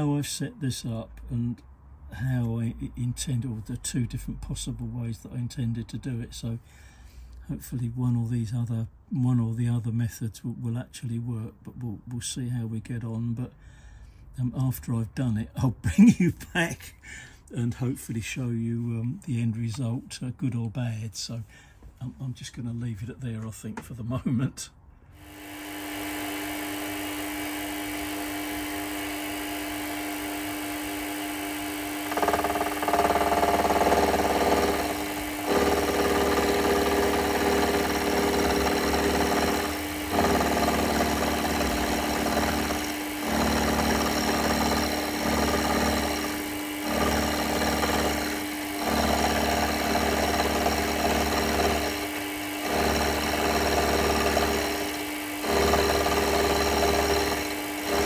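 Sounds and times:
machine motor humming: 0:25.2 - 0:58.0
rough machine working noise: 0:25.2 - 0:58.0.

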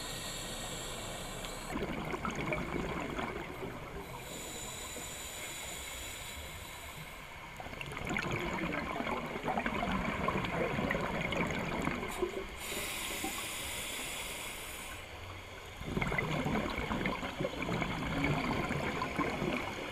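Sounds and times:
hissing inhale through regulator: 0:00.0 - 0:01.8, 0:03.2 - 0:07.6, 0:12.0 - 0:15.7
gurgle of exhaust bubbles: 0:01.7 - 0:04.2, 0:07.6 - 0:12.5, 0:15.8 - 0:19.9.

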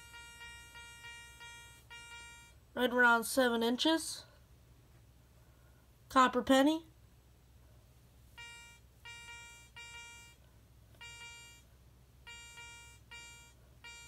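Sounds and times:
metal detector beeps: 0:00.0 - 0:02.6, 0:08.4 - 0:10.4, 0:11.0 - 0:11.6, 0:12.3 - 0:14.0.

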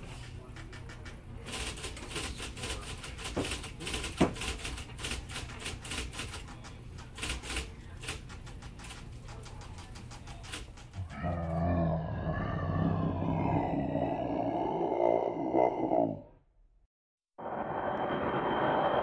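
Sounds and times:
keyboard keys clicking: 0:03.2 - 0:11.0.

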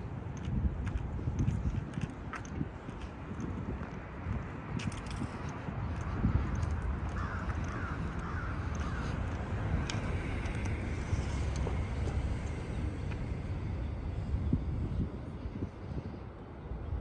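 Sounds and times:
steady low rumble: 0:00.0 - 0:17.0
crow cawing: 0:07.1 - 0:09.2.

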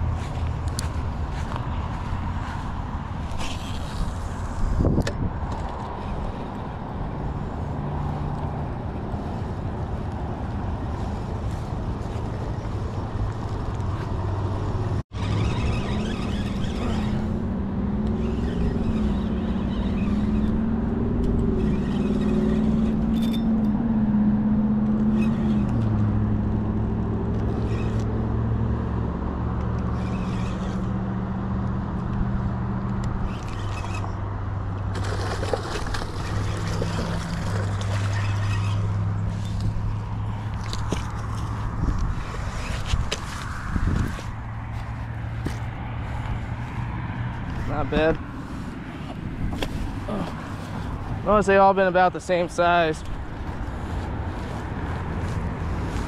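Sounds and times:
road traffic noise: 0:00.0 - 0:56.0
low wavering hum: 0:14.6 - 0:51.2.

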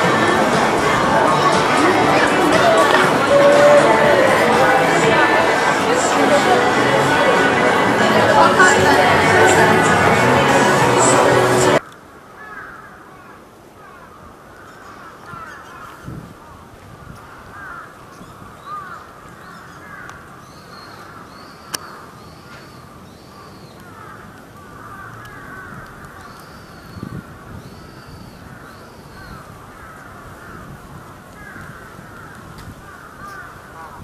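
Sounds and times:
crows cawing: 0:11.8 - 0:16.0, 0:17.2 - 0:18.0, 0:18.6 - 0:22.2, 0:23.8 - 0:27.6, 0:28.5 - 0:34.0
chorus of bird calls: 0:17.4 - 0:34.0.

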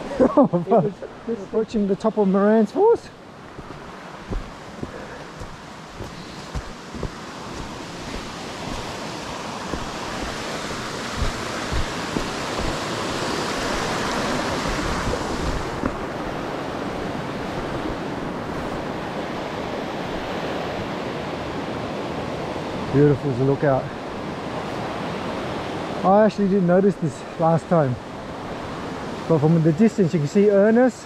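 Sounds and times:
creek rushing over rocks: 0:01.1 - 0:20.9
wind thumps on microphone: 0:03.4 - 0:19.5.

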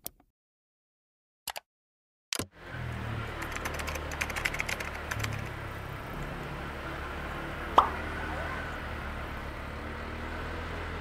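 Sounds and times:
motorbike riding rumble: 0:02.5 - 0:11.0
keyboard typing clicks: 0:03.4 - 0:05.5.

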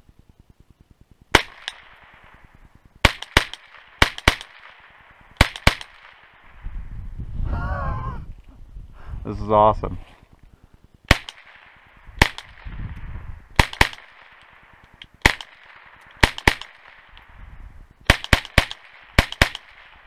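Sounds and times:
rifle shots with echo: 0:01.3 - 0:06.6, 0:11.0 - 0:17.4, 0:18.0 - 0:20.0.

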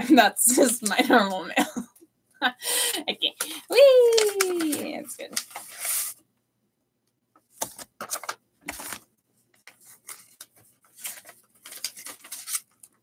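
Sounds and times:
paper envelope tearing and crinkling: 0:07.6 - 0:09.0, 0:09.6 - 0:13.0.

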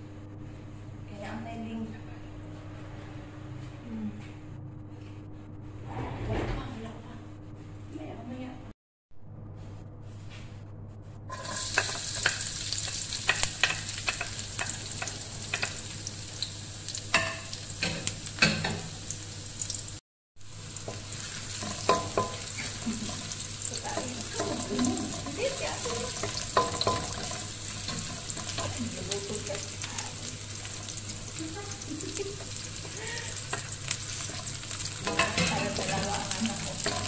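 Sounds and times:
wooden spoon scraping a wok: 0:11.3 - 0:15.8, 0:20.7 - 0:31.6, 0:32.4 - 0:37.0
onion sizzling in hot oil: 0:11.3 - 0:37.0.

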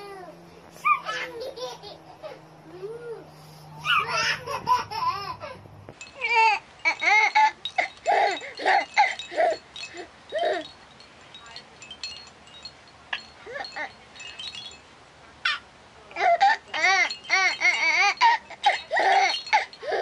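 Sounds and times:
baby toy jingling: 0:00.0 - 0:15.6, 0:16.2 - 0:20.0
baby squealing: 0:00.8 - 0:05.6, 0:16.2 - 0:20.0.

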